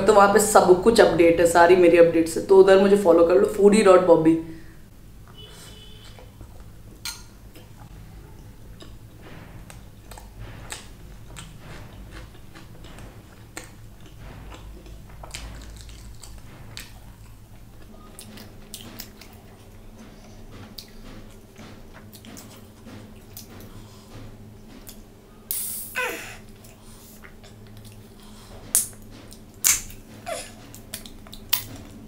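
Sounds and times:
low steady hum: 0:00.0 - 0:32.0
person chewing food: 0:08.6 - 0:09.0, 0:09.7 - 0:20.0, 0:26.4 - 0:30.0.

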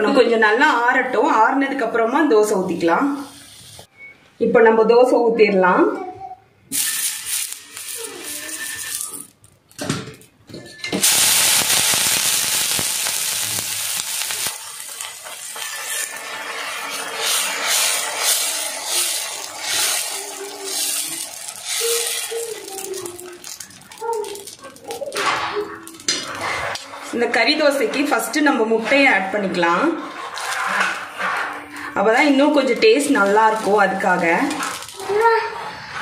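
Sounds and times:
hot griddle sizzling: 0:06.7 - 0:09.3, 0:11.0 - 0:28.2, 0:30.0 - 0:36.0
ladle scraping griddle: 0:06.8 - 0:09.3, 0:11.0 - 0:36.0.

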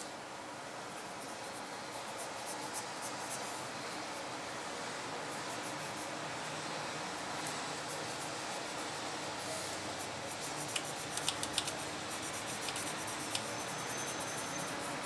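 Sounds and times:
steady hiss: 0:00.0 - 0:15.0
pencil scratching on paper: 0:07.8 - 0:15.0
sharp little clicks: 0:10.7 - 0:11.8.

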